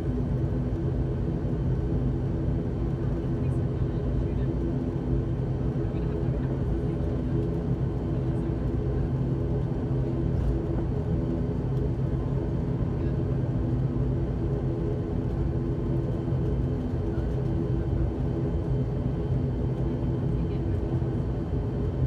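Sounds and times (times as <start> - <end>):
turboprop engine drone: 0.0 - 22.0.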